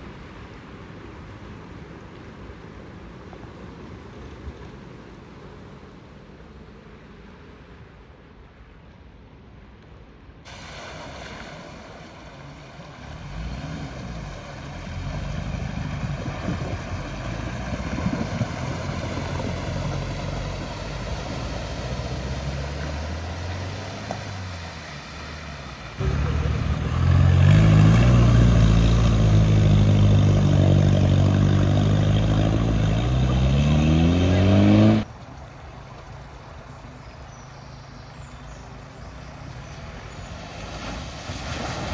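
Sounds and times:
water washing around vehicle: 10.5s - 41.9s
vehicle engine accelerating: 12.4s - 35.1s.

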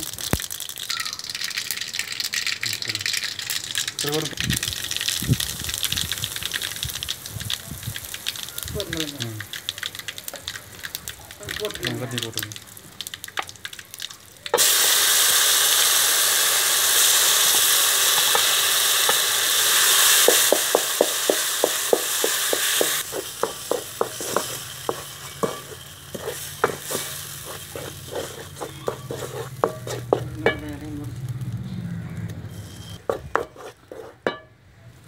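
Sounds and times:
paste sizzling in hot oil: 0.0s - 31.6s, 32.4s - 34.5s
wooden spatula scraping a pan: 21.9s - 30.6s, 32.5s - 34.5s.

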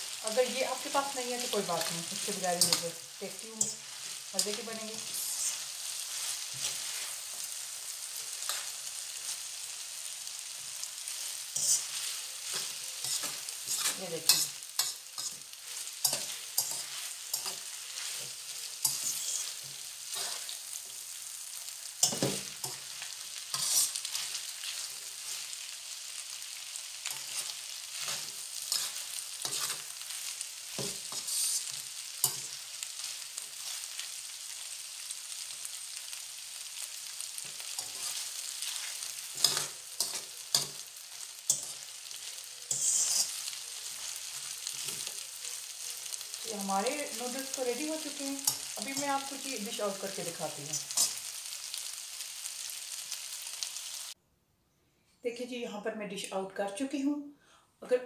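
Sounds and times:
noodles sizzling in frying pan: 0.0s - 54.2s
utensil scraping pan: 11.6s - 15.4s, 16.0s - 20.6s, 23.5s - 25.0s, 27.1s - 29.9s, 30.7s - 32.6s, 42.6s - 43.5s.

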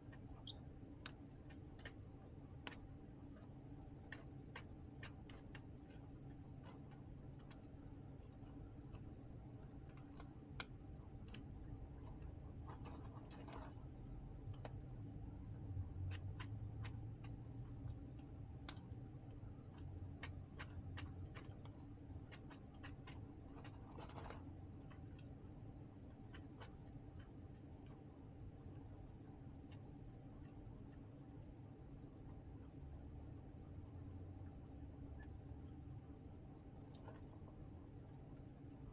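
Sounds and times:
chicks tapping and clicking: 0.0s - 6.1s, 16.0s - 25.3s
steady low hum: 0.0s - 38.9s
scratchy rustles: 12.1s - 13.9s, 22.3s - 24.5s.

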